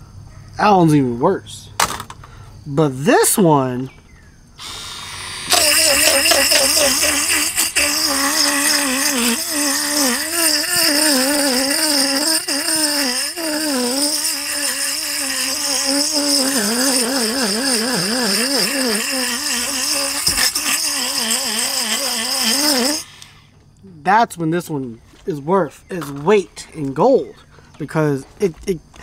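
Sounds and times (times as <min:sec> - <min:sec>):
electric fish scaler motor whine: 0:04.6 - 0:23.1.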